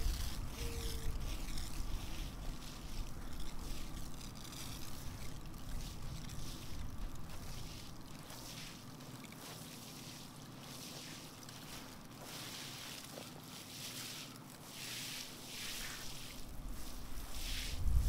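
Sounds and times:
wind rumbling on microphone: 0.0s - 7.9s, 16.5s - 18.0s
steady hiss: 0.0s - 18.0s.

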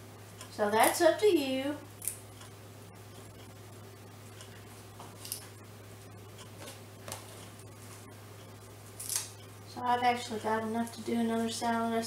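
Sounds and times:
steady low hum: 0.0s - 12.0s
spinach leaves rustling and snapping: 9.0s - 9.4s.

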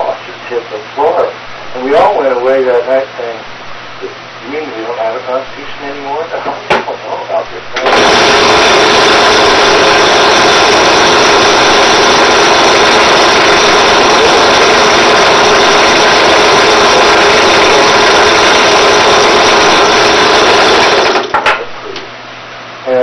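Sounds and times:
drill press whirring: 7.8s - 21.4s.

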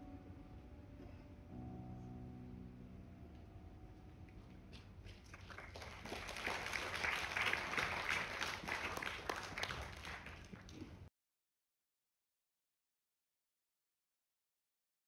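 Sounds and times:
audience applauding: 5.0s - 11.1s.

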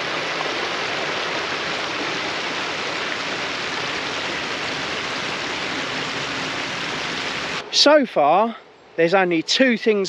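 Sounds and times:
water rushing over weir: 0.0s - 7.6s.

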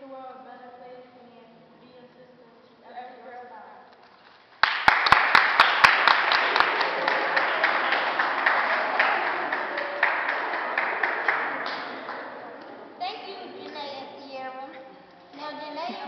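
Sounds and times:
audience applauding: 4.6s - 14.3s.

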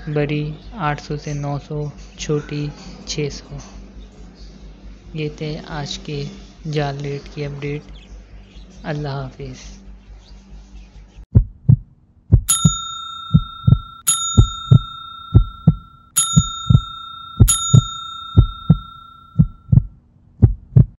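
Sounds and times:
heartbeat-like double thump: 11.3s - 15.8s, 16.4s - 21.0s
bright bell ding: 12.5s - 19.7s.

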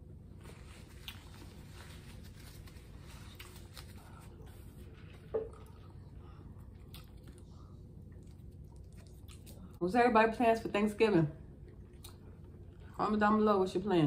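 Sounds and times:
wet chewing: 5.5s - 9.8s, 11.6s - 13.0s.

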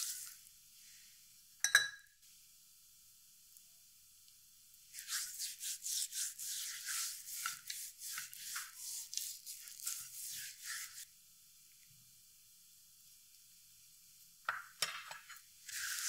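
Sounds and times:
hand rubbing seasoning on skin: 4.9s - 11.0s.

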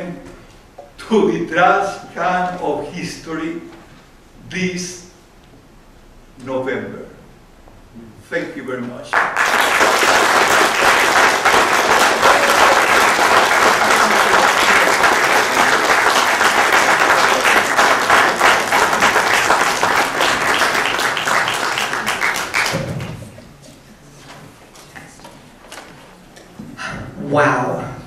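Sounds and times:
audience applauding: 9.1s - 23.4s.

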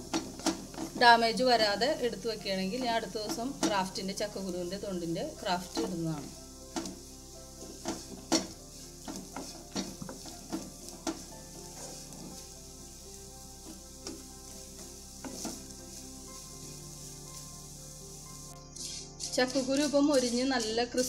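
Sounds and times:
food sizzling in oil: 0.0s - 21.0s
spatula scraping pan: 5.6s - 12.6s, 13.6s - 17.5s.

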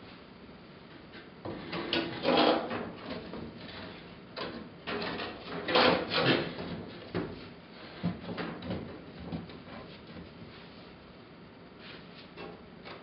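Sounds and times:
panel scraping against steel: 1.5s - 4.0s.

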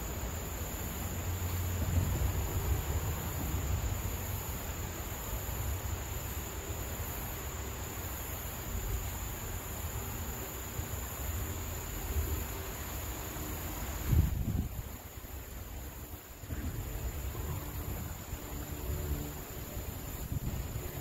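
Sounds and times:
high-pitched insect drone: 0.0s - 21.0s
wind rumbling on microphone: 1.2s - 4.8s, 13.9s - 21.0s.

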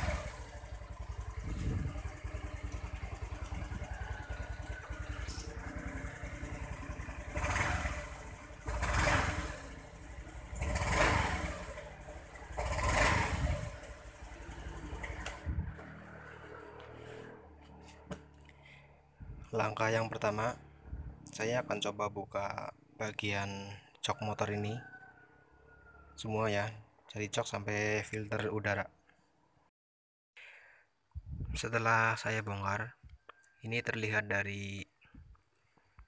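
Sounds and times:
scooter engine idling and revving: 0.0s - 23.0s.

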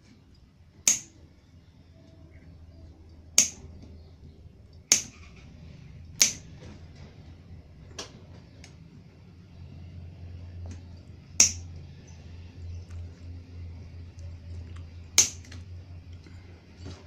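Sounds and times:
side cutters snipping wires: 0.8s - 1.2s, 3.4s - 3.7s, 4.9s - 5.4s, 6.2s - 6.6s, 11.4s - 11.7s, 15.2s - 15.6s.

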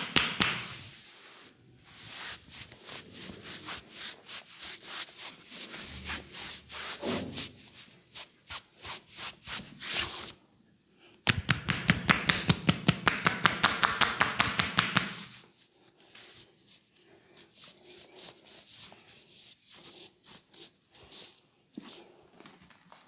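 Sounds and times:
hands slapping a back: 0.0s - 0.9s, 11.3s - 15.4s
hands rubbing on cloth: 0.2s - 10.4s, 13.0s - 22.0s.

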